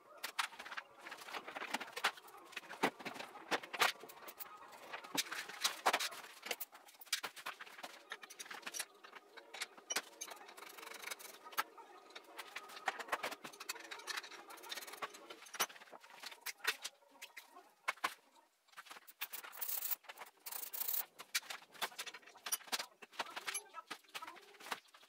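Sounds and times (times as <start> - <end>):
hand tools clicking and scraping: 0.2 - 16.9, 18.8 - 24.8.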